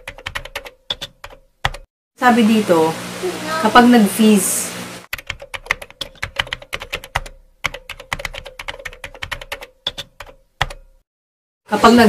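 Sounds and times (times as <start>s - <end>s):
keyboard typing clicks: 0.0s - 1.9s, 5.2s - 10.9s.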